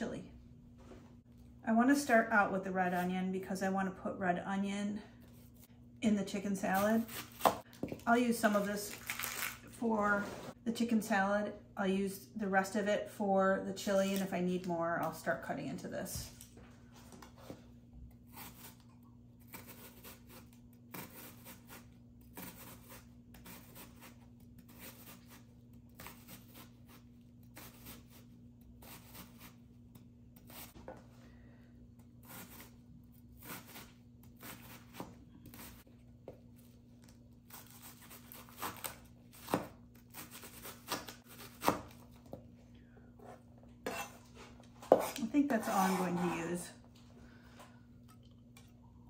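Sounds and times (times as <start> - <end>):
knife chopping onion on board: 7.1 - 7.7.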